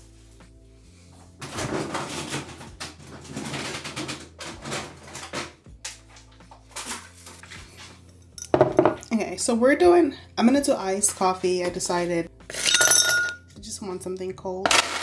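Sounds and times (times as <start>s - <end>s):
kitchen things being handled: 10.9s - 13.4s.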